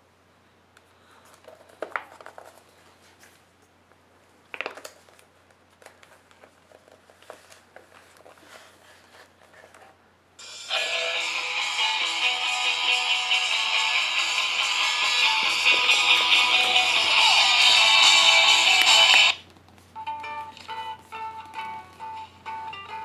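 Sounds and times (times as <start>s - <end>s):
magazine pages turning: 1.2s - 3.4s, 4.6s - 9.9s, 15.4s - 17.8s
music from small speaker: 10.4s - 19.4s, 20.0s - 23.0s.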